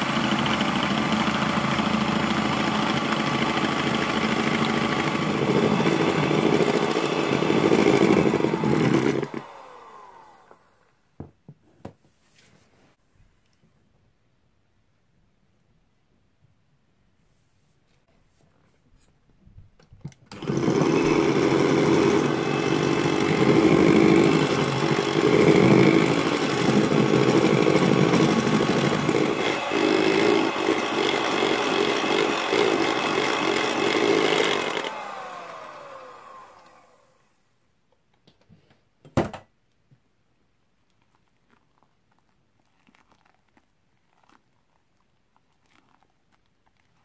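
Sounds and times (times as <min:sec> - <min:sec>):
electric hand mixer running: 0:00.0 - 0:10.9, 0:20.3 - 0:37.2.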